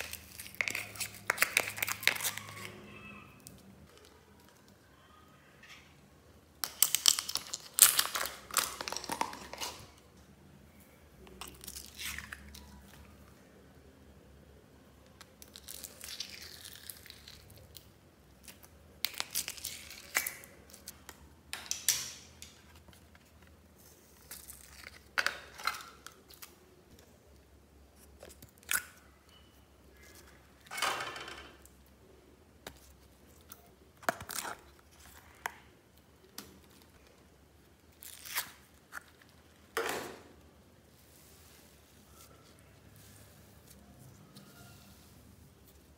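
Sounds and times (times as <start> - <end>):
plastic containers crinkling: 0.0 - 2.8, 6.6 - 10.0
slime squishing: 0.0 - 4.8.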